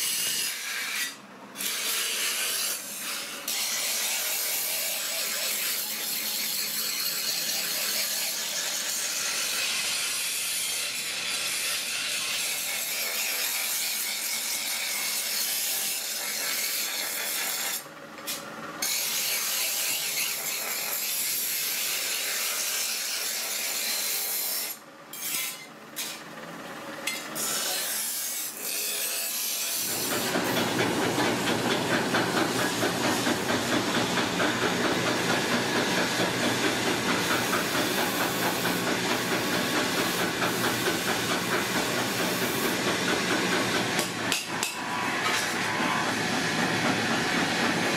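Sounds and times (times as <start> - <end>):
blade on grinding wheel: 0.0 - 47.9
wood lathe pulsing motor: 29.8 - 47.9.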